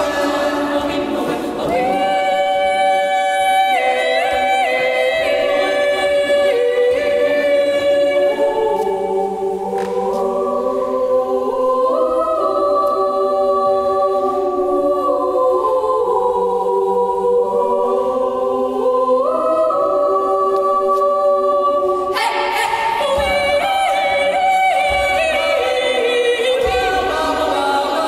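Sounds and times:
girls' choir singing: 0:00.0 - 0:28.0.

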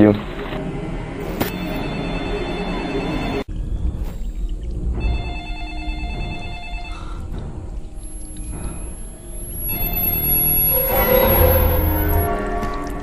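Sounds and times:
low rumble: 0:00.0 - 0:13.0
telephone ringing: 0:01.5 - 0:03.5, 0:05.0 - 0:07.2.

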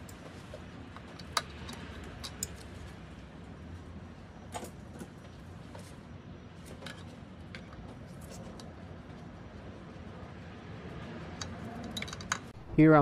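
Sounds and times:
tools clicking and ticking: 0:00.9 - 0:02.8, 0:11.3 - 0:12.6.

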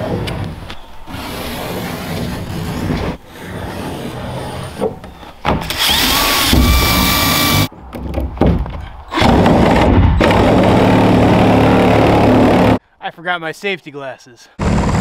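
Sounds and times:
reciprocating saw cutting plastic: 0:05.6 - 0:07.7.

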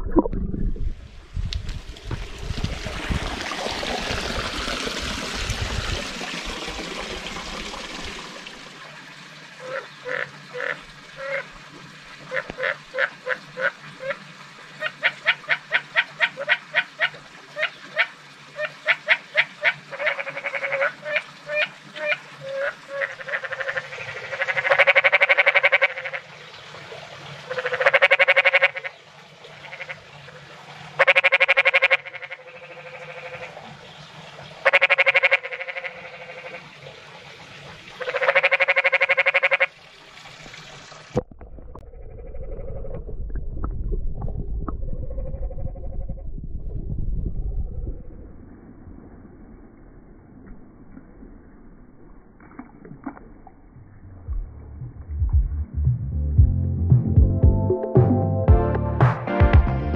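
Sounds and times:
frog croaking: 0:09.6 - 0:11.5, 0:12.3 - 0:14.2, 0:14.8 - 0:26.2, 0:27.5 - 0:29.0, 0:29.6 - 0:30.0, 0:31.0 - 0:33.6, 0:34.6 - 0:36.7, 0:38.0 - 0:39.7.

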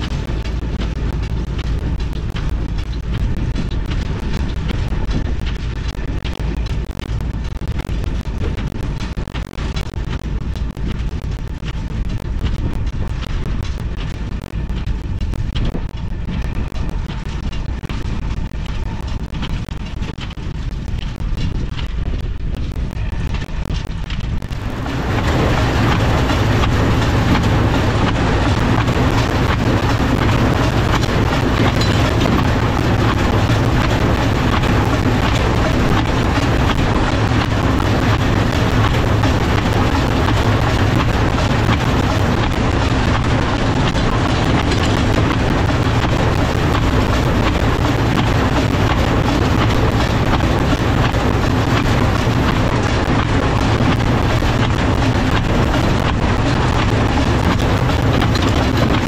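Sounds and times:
tractor engine hum: 0:00.0 - 0:59.0
hay baler machinery running: 0:24.5 - 0:59.0.

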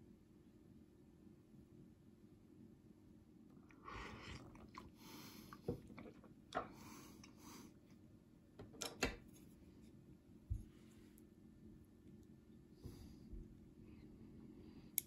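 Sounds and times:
low room hum: 0:00.0 - 0:15.0
breathy slurping: 0:03.7 - 0:07.4.

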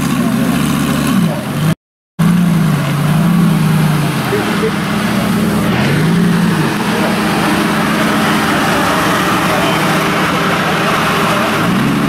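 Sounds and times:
car engine running at low revs: 0:00.0 - 0:12.0.

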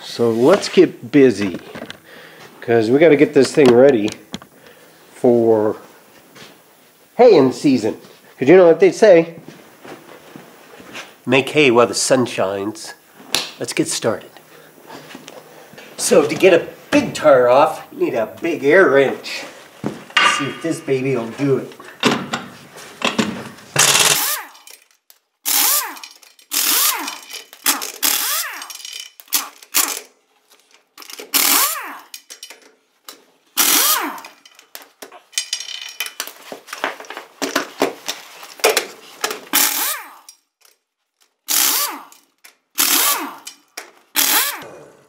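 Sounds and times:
pneumatic impact wrench bursts: 0:23.8 - 0:24.7, 0:25.4 - 0:30.1, 0:31.0 - 0:32.2, 0:33.6 - 0:34.4, 0:39.5 - 0:40.3, 0:41.5 - 0:44.7.

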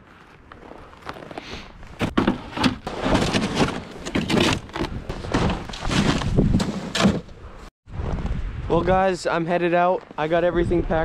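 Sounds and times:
gear thunking into plastic sled: 0:02.0 - 0:07.3.

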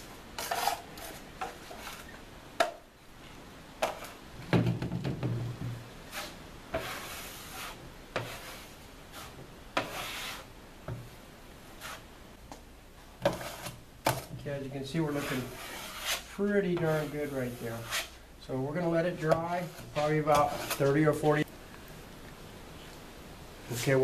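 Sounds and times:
taping knife scraping compound: 0:00.4 - 0:02.2, 0:06.0 - 0:10.5, 0:11.8 - 0:12.1, 0:13.2 - 0:14.2, 0:14.9 - 0:18.2, 0:18.8 - 0:21.5.

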